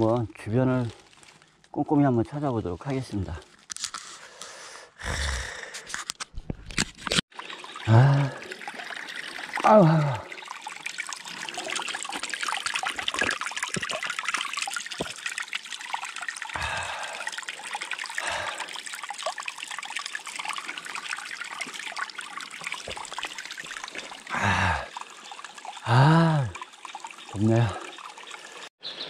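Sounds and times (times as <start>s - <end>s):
water trickling: 7.3s - 28.7s
man's voice short sounds: 9.6s - 10.2s, 27.4s - 27.8s.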